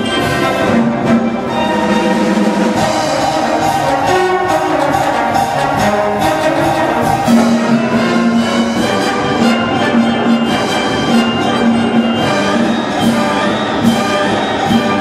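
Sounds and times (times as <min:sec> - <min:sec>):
school wind band playing: 0:00.0 - 0:15.0.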